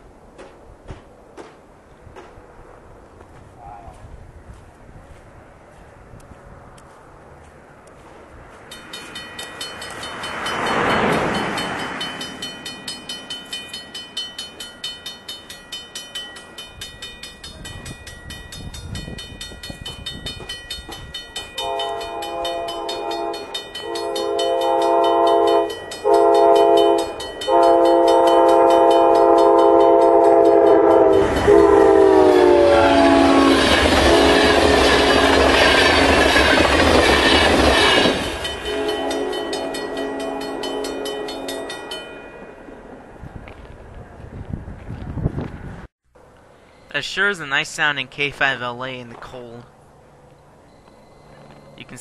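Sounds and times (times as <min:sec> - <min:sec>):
passenger train clattering by: 0:06.7 - 0:45.8
crossing warning bell ringing: 0:08.6 - 0:43.6, 0:46.6 - 0:52.0
train air horn blasts: 0:21.6 - 0:36.1, 0:37.1 - 0:41.6.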